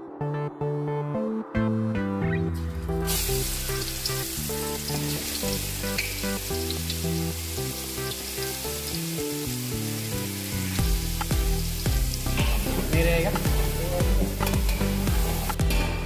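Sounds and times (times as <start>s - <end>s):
paste sizzling in hot oil: 3.0s - 15.7s.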